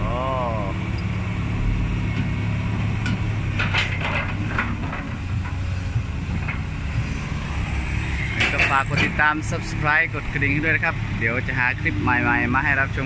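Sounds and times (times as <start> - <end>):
excavator diesel engine running: 0.0 - 13.0
short knocks and clatters: 3.0 - 5.6.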